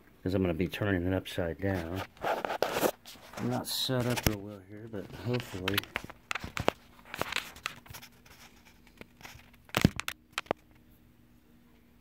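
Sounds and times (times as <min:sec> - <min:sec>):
fingers rubbing and tapping phone: 0:01.7 - 0:10.6.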